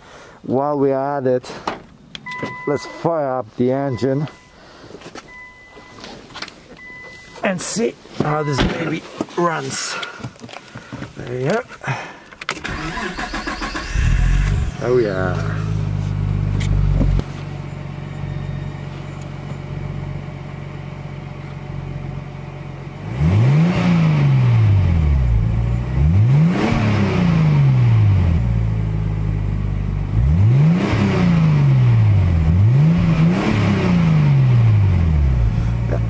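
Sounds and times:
car engine idling and revving: 12.5s - 36.0s.

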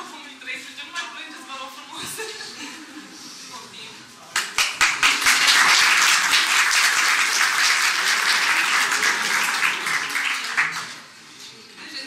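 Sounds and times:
group applauding: 4.3s - 11.2s.

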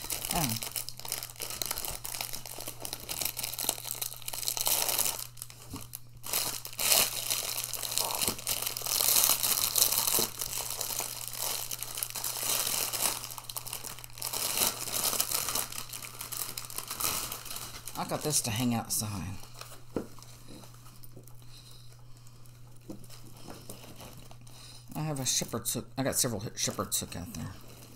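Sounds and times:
plastic bag crinkling: 0.0s - 27.9s.

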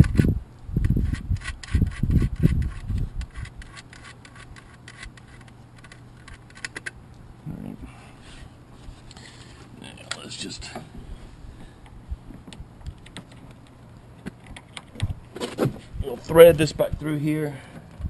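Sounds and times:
hands rubbing plastic with clicks: 0.0s - 7.0s.

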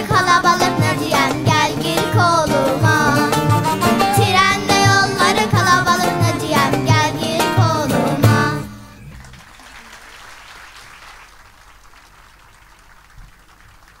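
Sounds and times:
children singing folk song: 0.0s - 9.0s
oud and lute playing: 0.0s - 9.0s
audience applause: 8.9s - 14.0s.

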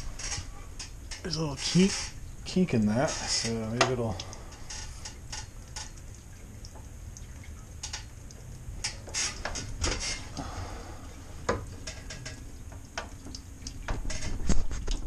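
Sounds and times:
faucet trickling into a sink: 0.0s - 15.0s
hose handling clicks and knocks: 2.8s - 6.9s, 7.7s - 10.4s, 11.4s - 15.0s.

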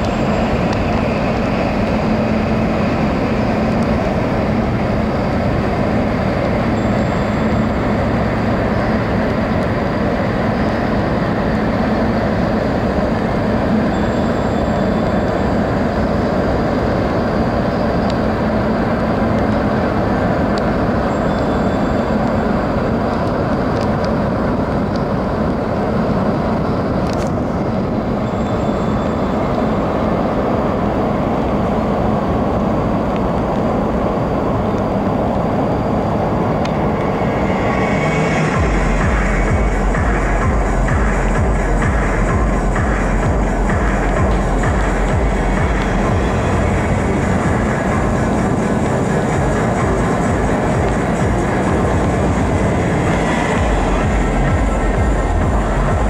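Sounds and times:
ferry engines low drone: 0.0s - 56.0s.

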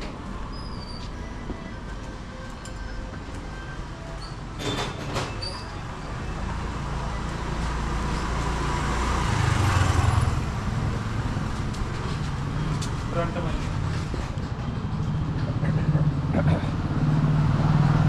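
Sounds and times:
motor vehicle engine: 0.0s - 18.0s.

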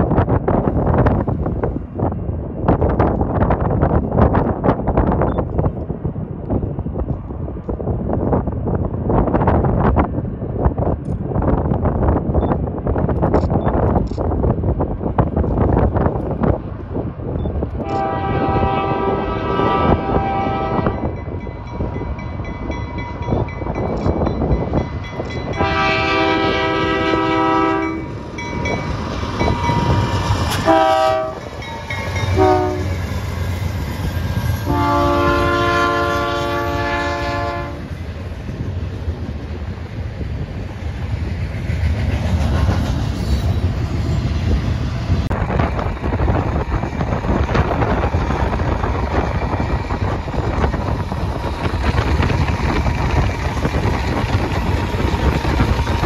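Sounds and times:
diesel locomotives rumbling: 0.0s - 56.0s
train wheels on rails: 0.0s - 56.0s
wind on microphone: 0.0s - 56.0s
train horn blasts: 17.8s - 21.1s, 25.5s - 28.2s, 30.6s - 31.6s, 32.3s - 33.0s, 34.6s - 37.9s.

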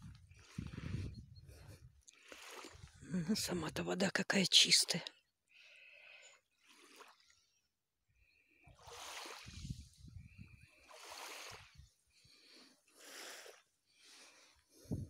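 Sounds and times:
small waves lapping on shore: 2.1s - 3.8s, 6.5s - 7.6s, 8.4s - 14.9s.

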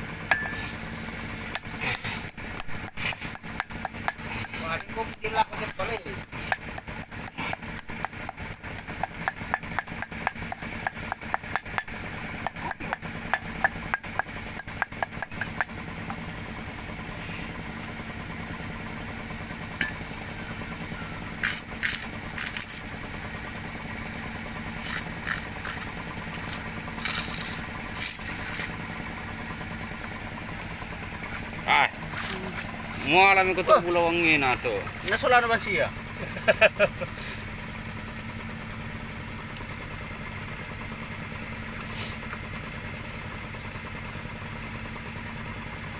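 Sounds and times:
steady engine hum: 0.0s - 45.9s
steel rod pounding stone: 0.3s - 15.8s, 19.8s - 20.1s, 24.7s - 28.7s.

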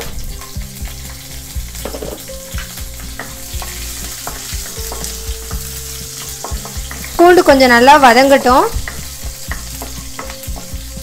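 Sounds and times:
food sizzling in hot oil: 0.0s - 11.0s
spatula tapping against pan: 3.2s - 5.7s, 6.4s - 7.2s, 8.8s - 10.8s.

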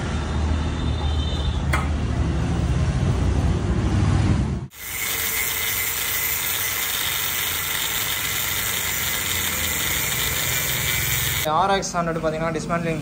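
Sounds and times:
angle grinder grinding metal: 4.7s - 11.5s.

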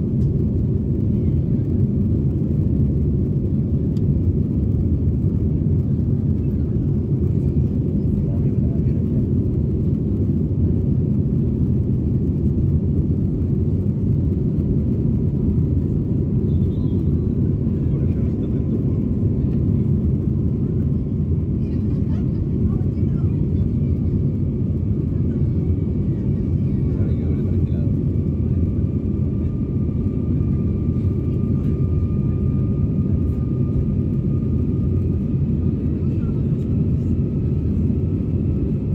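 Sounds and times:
jet engines rumbling: 0.0s - 38.9s
faint high whine: 11.2s - 21.9s.

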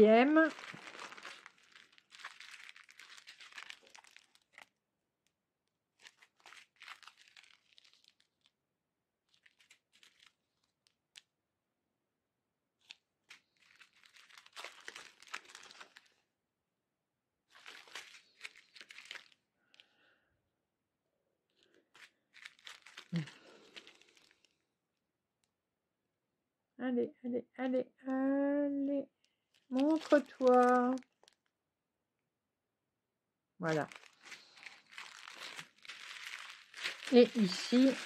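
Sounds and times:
plastic bag crinkling and tearing: 0.0s - 4.8s, 5.9s - 8.6s, 9.3s - 11.3s, 12.8s - 16.2s, 17.5s - 19.9s, 21.6s - 24.6s, 29.4s - 31.5s, 33.7s - 38.0s.

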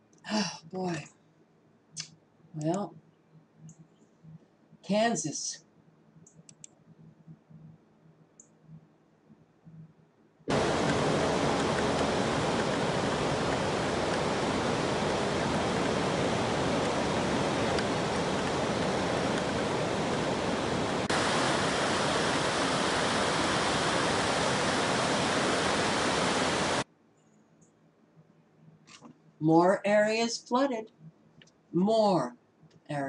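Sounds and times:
floodwater rushing across road: 10.5s - 26.8s.

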